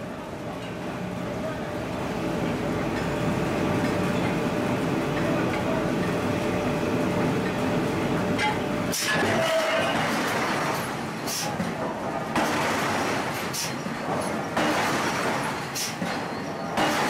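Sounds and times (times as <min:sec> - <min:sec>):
machinery mechanical din: 0:08.4 - 0:17.0.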